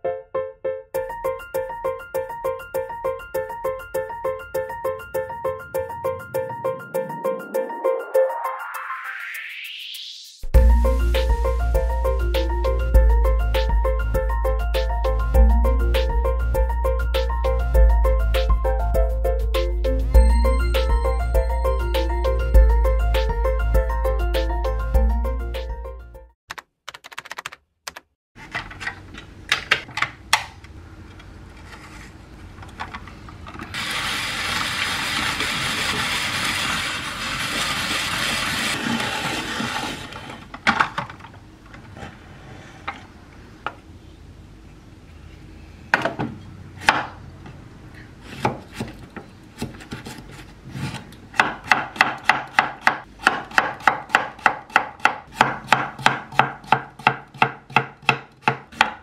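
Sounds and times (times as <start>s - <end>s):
vegetable spiralizer rasping: 33.7s - 40.5s
knife chopping on wooden board: 48.3s - 59.0s.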